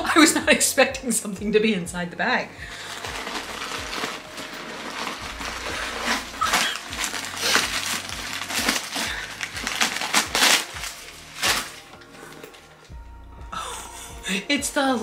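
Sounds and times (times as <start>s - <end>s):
packaging crinkling and rustling: 2.6s - 12.9s.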